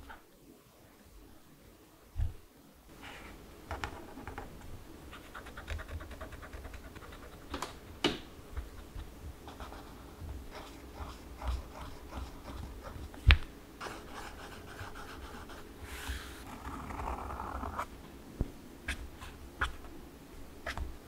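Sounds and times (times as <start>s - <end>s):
felt tip scratching paper: 5.2s - 7.6s, 8.7s - 13.2s.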